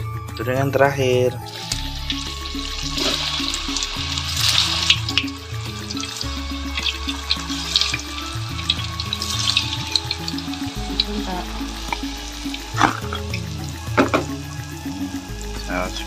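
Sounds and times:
background music: 0.0s - 16.0s
food frying in oil: 1.4s - 16.0s.

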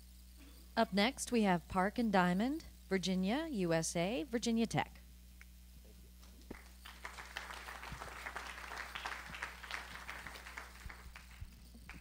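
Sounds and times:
audience clapping: 6.5s - 12.0s.

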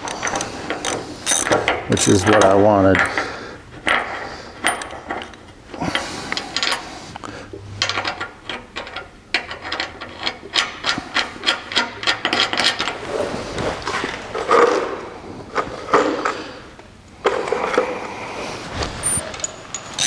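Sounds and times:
hand tools clicking on metal: 0.0s - 3.2s.

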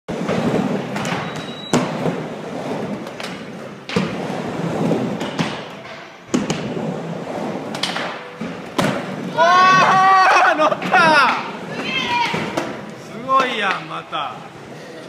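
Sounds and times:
skateboard wheels rumbling on ramp: 0.1s - 1.2s, 1.8s - 5.5s, 6.3s - 12.9s.

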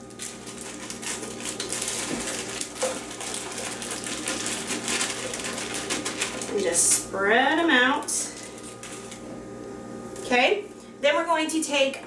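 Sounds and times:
plastic bag crinkling: 0.0s - 7.2s, 8.2s - 9.2s.

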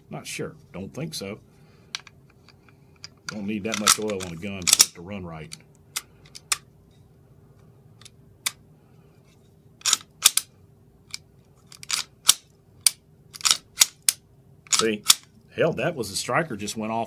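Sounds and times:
pistol slide clicks and snaps: 9.8s - 10.5s, 11.1s - 15.3s.

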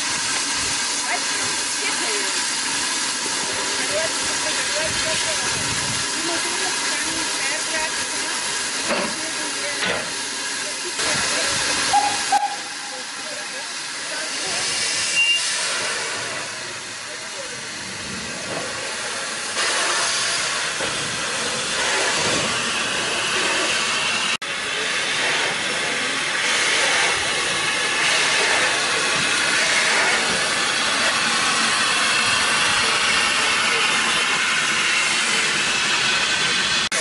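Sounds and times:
steam locomotive hissing: 0.0s - 37.0s.

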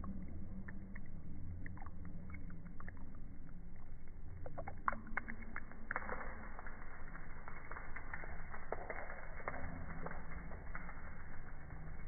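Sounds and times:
steady low rumble: 0.0s - 12.0s
water splashing onto carpet: 4.4s - 12.0s.

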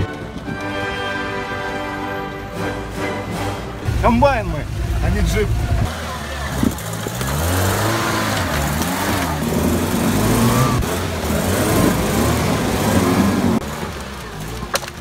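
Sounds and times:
off-road vehicle engine revving: 3.7s - 15.0s.

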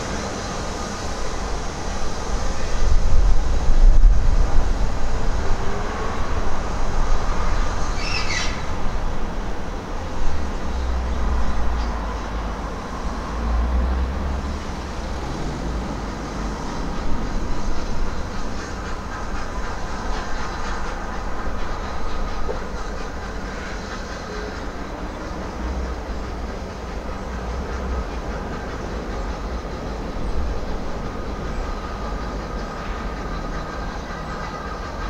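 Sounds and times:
steam locomotive rumbling: 0.0s - 35.0s
high squeal: 7.4s - 8.8s.

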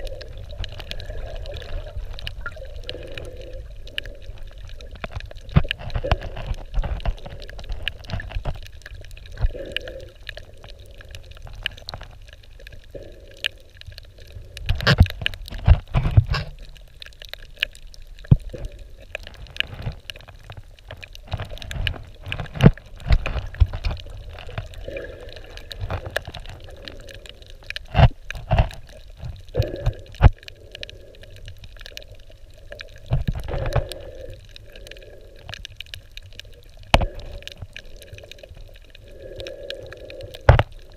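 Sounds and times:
underwater sloshing rumble: 0.0s - 40.9s
underwater clicks and knocks: 3.9s - 10.4s, 14.6s - 30.5s, 32.7s - 34.2s, 35.5s - 38.7s, 40.3s - 40.9s.

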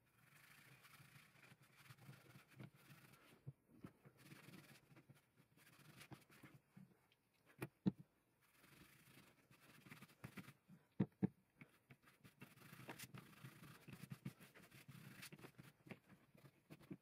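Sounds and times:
cloth wiping leather: 12.0s - 15.8s.

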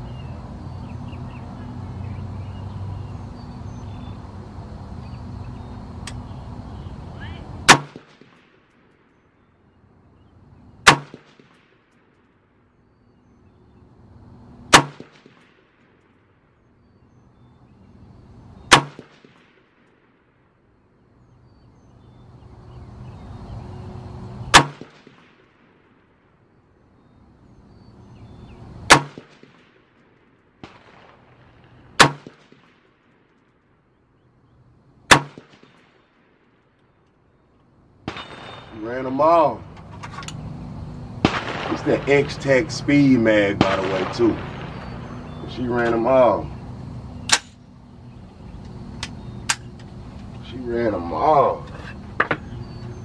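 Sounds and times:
rifle shots: 7.6s - 9.2s, 10.8s - 12.0s, 14.7s - 16.0s, 18.7s - 20.1s, 24.5s - 25.8s, 28.9s - 30.0s, 30.6s - 33.2s, 35.1s - 36.4s, 38.0s - 39.6s, 41.2s - 46.4s.

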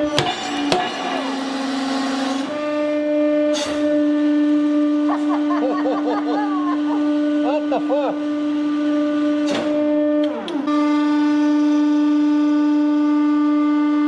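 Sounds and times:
hydraulic pump humming: 0.0s - 14.0s
person making wavering sounds: 5.1s - 8.2s.

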